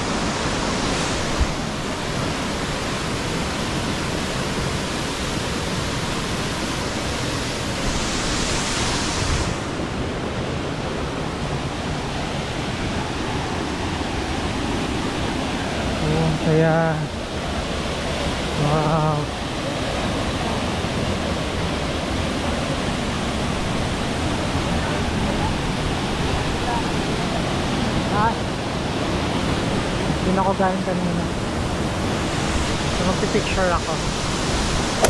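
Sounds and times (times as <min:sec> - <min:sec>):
waterfall rushing: 0:00.0 - 0:26.8.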